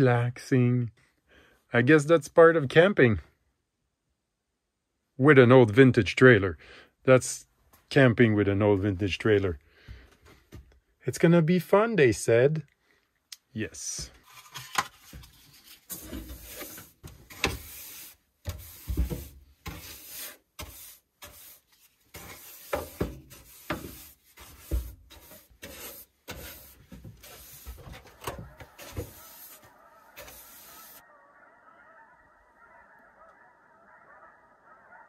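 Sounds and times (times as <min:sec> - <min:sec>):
hand brush sweeping countertop: 0:15.8 - 0:31.0.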